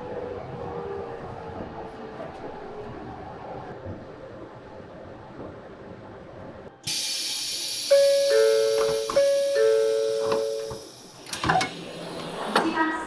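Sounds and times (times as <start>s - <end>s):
loud hiss of air: 6.9s - 11.2s
two-note door chime: 7.9s - 10.9s.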